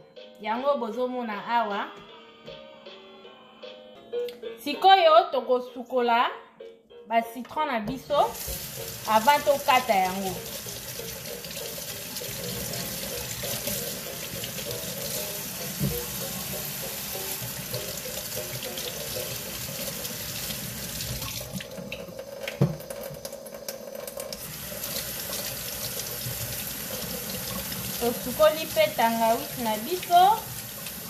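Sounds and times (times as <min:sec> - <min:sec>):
faucet running into a steel sink: 0:08.3 - 0:31.0.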